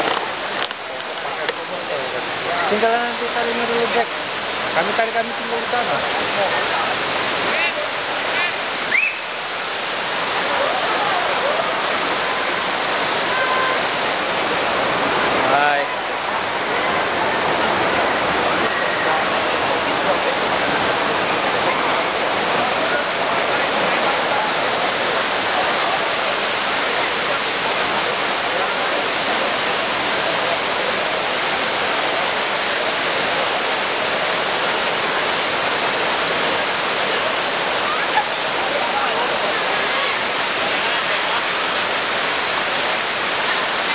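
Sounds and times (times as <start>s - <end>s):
stream pouring over rocks: 0.0s - 43.9s
waterfall rushing: 0.0s - 43.9s
faint crowd voices: 10.1s - 43.9s.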